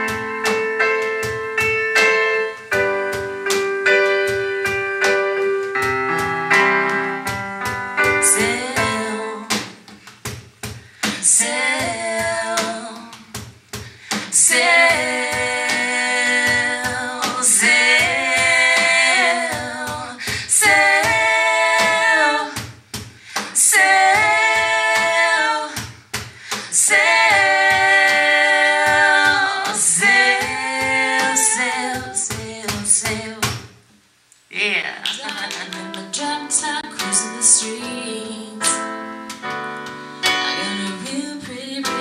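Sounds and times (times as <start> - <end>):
cajon beat: 0.0 - 33.9, 34.5 - 37.9
women singing held notes: 11.0 - 13.4, 14.1 - 22.6, 23.3 - 25.8, 26.4 - 33.6.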